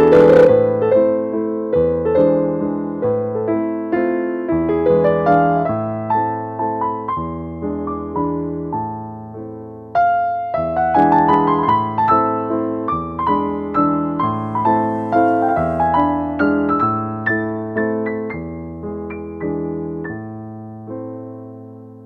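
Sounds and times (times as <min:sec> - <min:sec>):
solo piano melody: 0:00.0 - 0:22.0.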